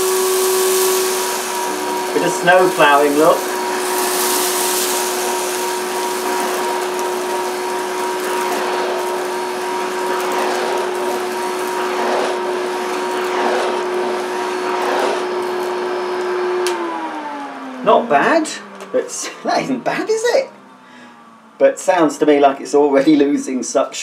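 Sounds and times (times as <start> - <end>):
vacuum cleaner motor whine: 0.0 - 23.3
floor tool pushed over carpet: 0.1 - 16.6.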